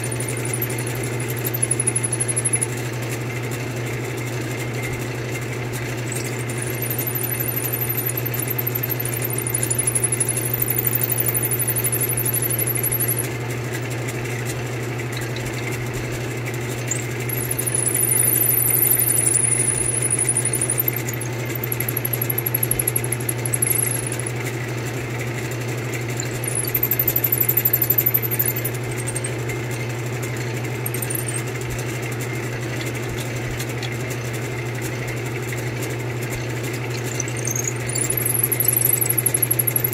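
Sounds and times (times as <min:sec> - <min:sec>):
drill bit whining into wood: 0:06.6 - 0:13.3, 0:17.3 - 0:24.3, 0:37.0 - 0:39.9.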